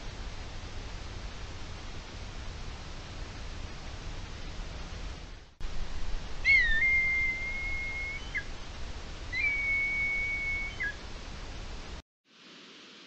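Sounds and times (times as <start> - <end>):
steady hiss: 0.0 - 13.0
bird whistling calls: 6.4 - 8.5, 9.3 - 11.0.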